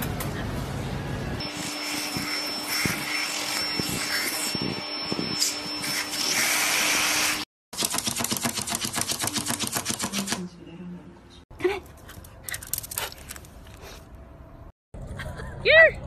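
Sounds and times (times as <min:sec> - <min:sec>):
vacuum cleaner running: 0:01.4 - 0:07.5.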